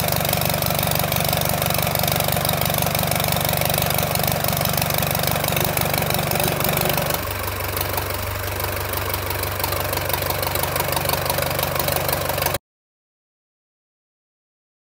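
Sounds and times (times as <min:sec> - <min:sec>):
diesel engine running: 0:00.0 - 0:12.6
water gushing from hose: 0:04.0 - 0:07.4.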